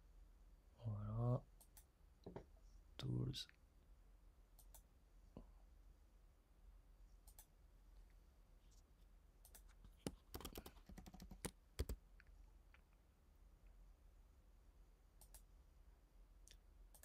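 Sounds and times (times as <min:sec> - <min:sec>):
computer mouse clicks: 0:01.6 - 0:01.9, 0:04.6 - 0:04.9, 0:07.2 - 0:07.5, 0:09.4 - 0:12.0, 0:15.2 - 0:15.5
keyboard key presses: 0:09.5 - 0:12.0.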